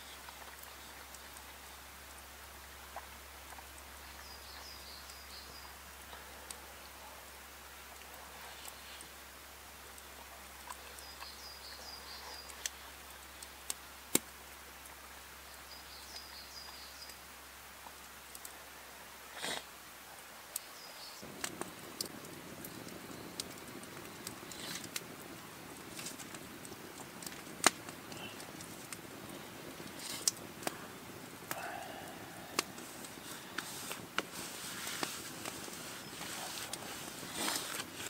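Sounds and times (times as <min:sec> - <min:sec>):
campfire crackling and popping: 0:00.0 - 0:18.6, 0:19.2 - 0:38.0
background hiss: 0:00.0 - 0:38.0
sharp clicks and snaps: 0:21.4 - 0:29.1, 0:29.8 - 0:30.8.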